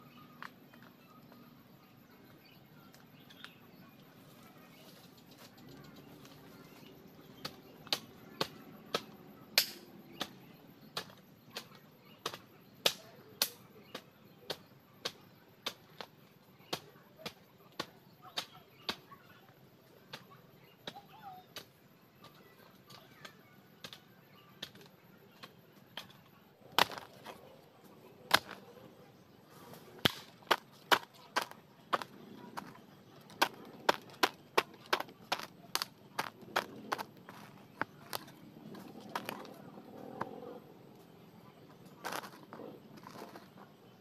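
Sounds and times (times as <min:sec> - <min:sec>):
sharp strikes or chops: 0:07.9 - 0:10.4.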